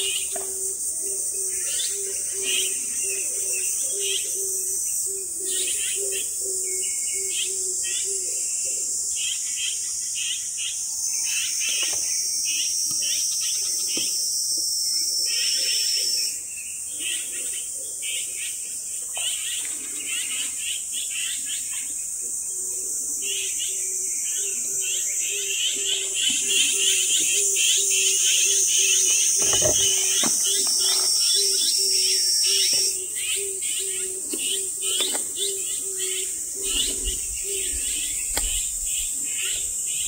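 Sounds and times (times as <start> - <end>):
insects trilling: 0.0 - 40.0
birds chirping: 15.2 - 40.0.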